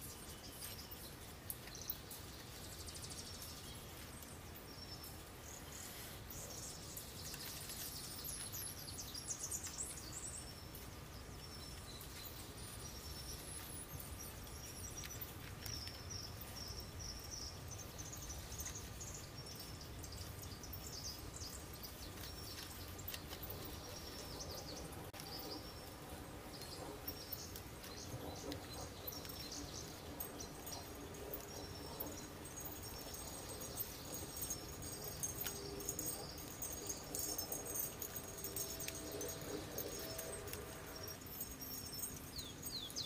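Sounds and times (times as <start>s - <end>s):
small birds chirping: 0.0s - 43.0s.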